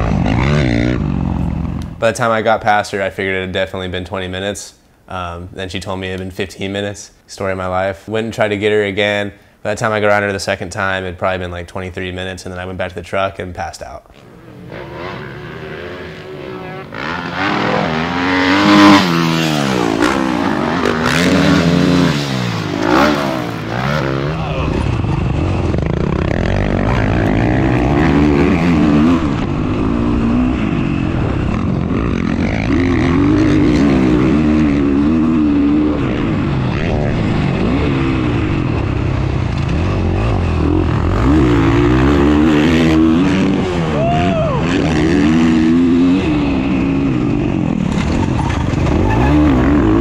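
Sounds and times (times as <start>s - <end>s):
dirt bike engine revving: 0.0s - 2.0s, 14.2s - 50.0s.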